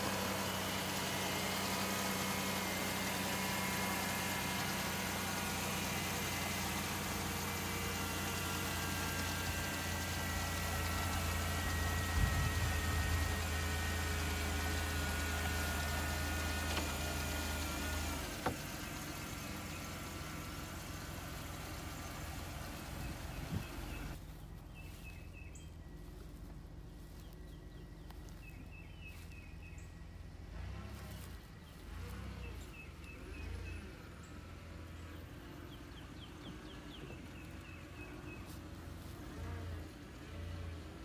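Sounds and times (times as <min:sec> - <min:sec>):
car engine idling: 0:00.0 - 0:41.0
faint low rumble: 0:23.4 - 0:30.3.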